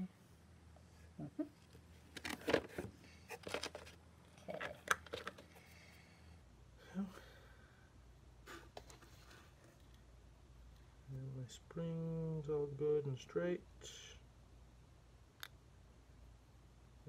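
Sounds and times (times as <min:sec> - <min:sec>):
hands handling small parts: 0:01.6 - 0:05.7.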